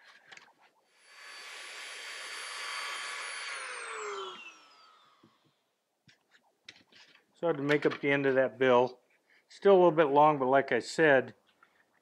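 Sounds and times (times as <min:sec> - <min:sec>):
rotary tool whining: 0:00.0 - 0:05.6
rotary tool spinning down: 0:01.0 - 0:05.5.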